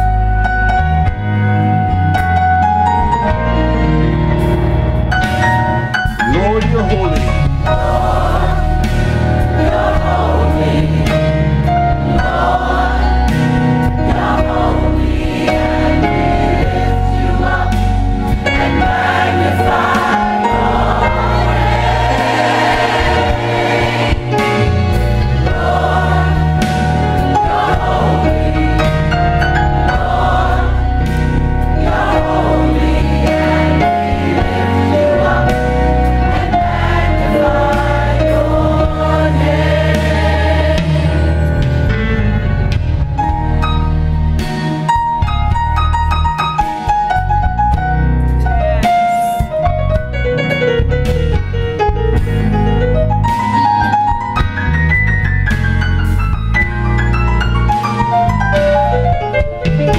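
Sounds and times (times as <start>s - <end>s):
low bass line: 0.0s - 46.4s
keyboard: 0.0s - 59.9s
steady beat: 5.2s - 41.8s
gospel choir singing in harmony: 7.2s - 45.2s.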